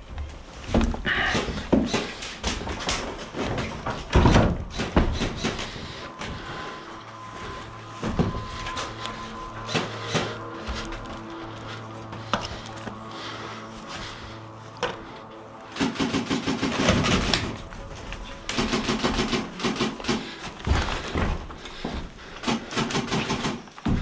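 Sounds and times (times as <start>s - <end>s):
background music with low drone: 0.0s - 24.0s
footsteps thumping on wooden boards: 20.5s - 22.4s.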